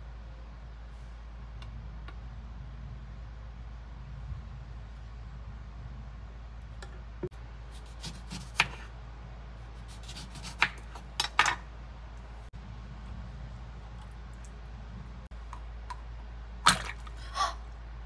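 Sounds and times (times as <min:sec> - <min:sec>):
steady low hum: 0:00.0 - 0:18.0
knife cutting on wooden board: 0:07.7 - 0:08.9.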